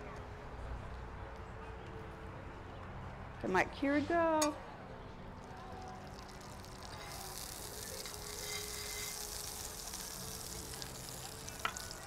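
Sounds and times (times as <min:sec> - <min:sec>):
fat sizzling in a pan: 0:05.4 - 0:12.0.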